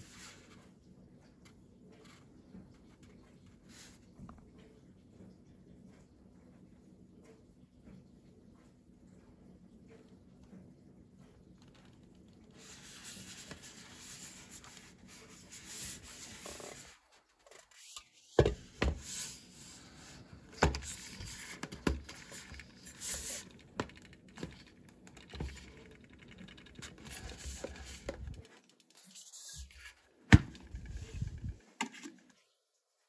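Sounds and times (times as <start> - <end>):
hands rubbing cardboard tube: 12.6 - 18.2.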